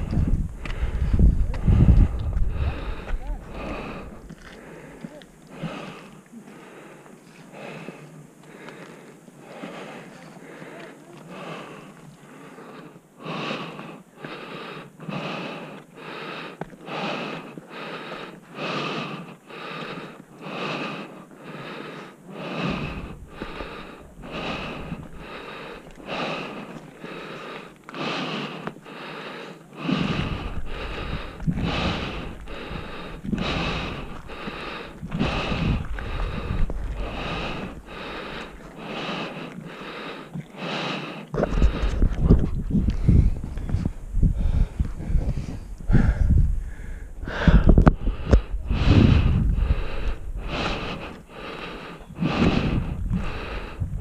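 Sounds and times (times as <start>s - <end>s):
wind buffeting microphone: 0.0s - 4.4s, 22.6s - 26.7s, 29.8s - 39.4s, 41.3s - 54.0s
person panting heavily: 0.0s - 54.0s.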